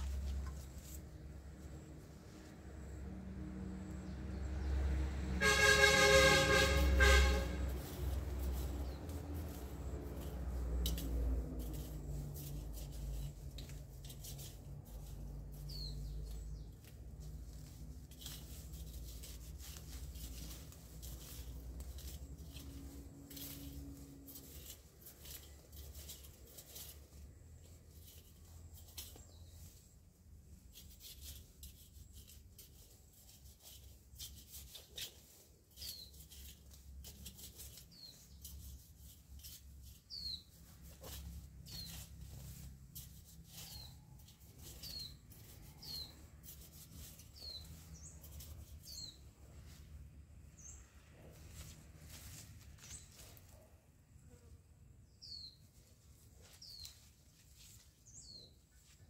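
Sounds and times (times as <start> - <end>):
hands rustling in soil: 0.0 - 3.1, 5.4 - 59.0
small bird chirping: 11.7 - 23.8, 34.8 - 38.8, 39.4 - 49.8, 55.0 - 59.0.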